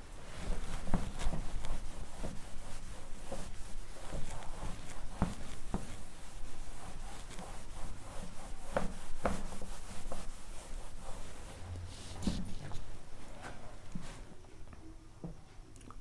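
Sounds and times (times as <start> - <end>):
eraser rubbing on whiteboard: 0.4 - 13.7
eraser knocking on board: 8.6 - 10.3.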